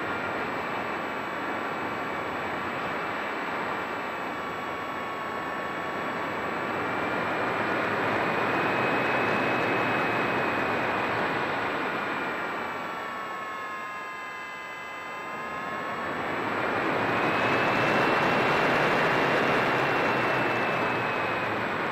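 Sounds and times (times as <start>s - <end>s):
motor and propeller whine: 0.0s - 21.9s.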